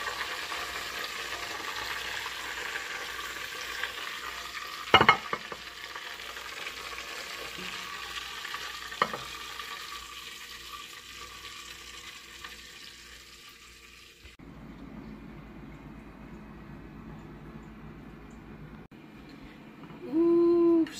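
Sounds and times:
cooking fat sizzling: 0:00.0 - 0:14.4
low hum: 0:14.4 - 0:20.8.

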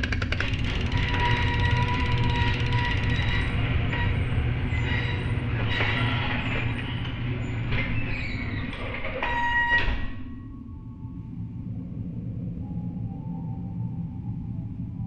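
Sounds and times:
garage door chain drive rumbling: 0:00.0 - 0:09.2
metallic squealing and rattling: 0:00.1 - 0:10.4.

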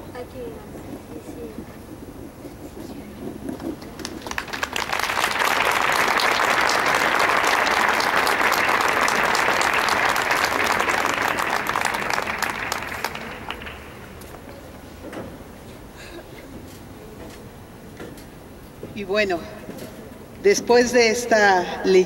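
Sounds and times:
audience applauding: 0:03.5 - 0:14.6.

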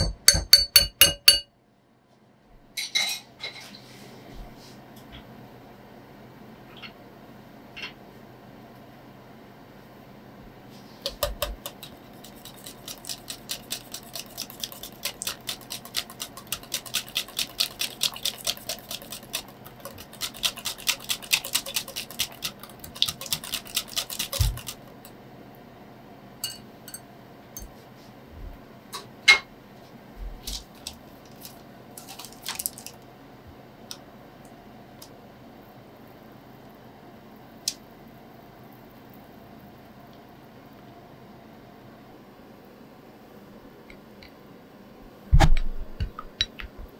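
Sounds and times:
whisk clicking against glass bowl: 0:00.0 - 0:01.4, 0:11.1 - 0:25.2.

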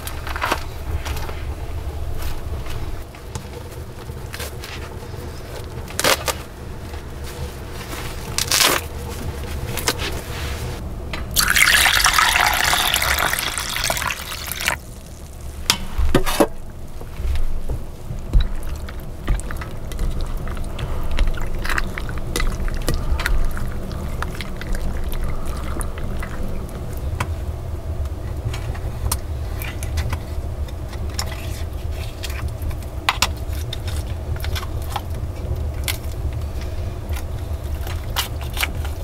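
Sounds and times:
steady low rumble: 0:00.0 - 0:39.0
water sloshing and dripping: 0:11.4 - 0:15.0.

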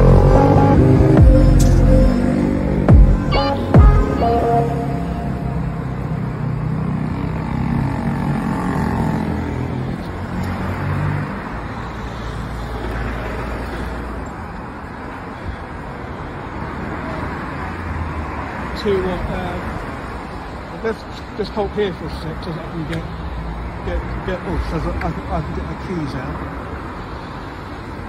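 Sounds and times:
vehicle passing: 0:00.0 - 0:15.1
road traffic: 0:00.0 - 0:28.0.

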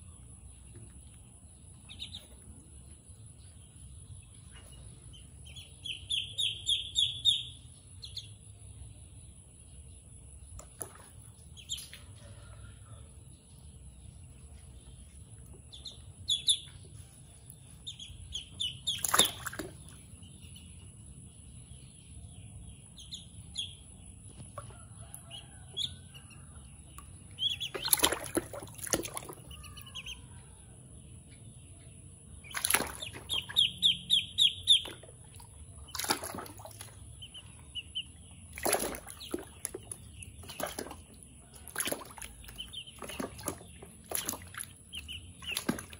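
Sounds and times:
ducklings splashing in water: 0:00.2 - 0:45.9
ducklings peeping: 0:00.5 - 0:08.4, 0:10.5 - 0:45.9.

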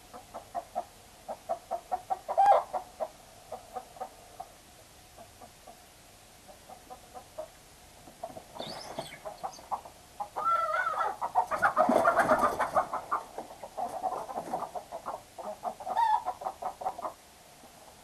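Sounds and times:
chickens clucking: 0:00.0 - 0:18.0
chickens squawking in panic: 0:01.7 - 0:02.9, 0:08.2 - 0:17.2.

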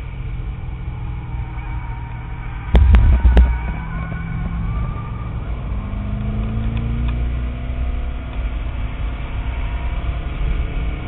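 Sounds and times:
car engine accelerating: 0:00.0 - 0:11.0
road noise: 0:00.0 - 0:11.0.

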